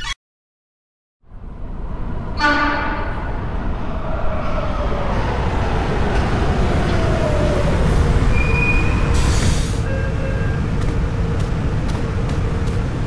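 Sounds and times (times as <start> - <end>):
train rumbling and braking: 1.3 - 13.0
train doors hissing open: 8.4 - 9.9.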